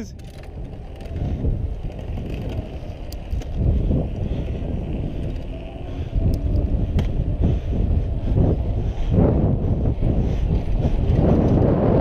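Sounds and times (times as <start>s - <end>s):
wind buffeting microphone: 0.0s - 12.0s
tyres rumbling on asphalt: 0.1s - 12.0s.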